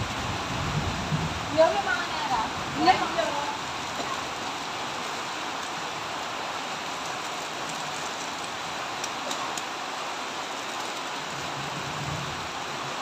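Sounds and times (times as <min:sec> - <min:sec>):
heavy rain hissing: 0:00.0 - 0:13.0
faint light ticks: 0:07.7 - 0:09.7.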